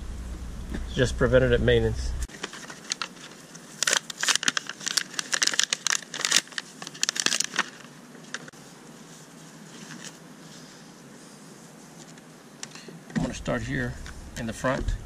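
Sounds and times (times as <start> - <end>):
thin plastic crinkling: 2.3 - 8.5, 9.1 - 10.6.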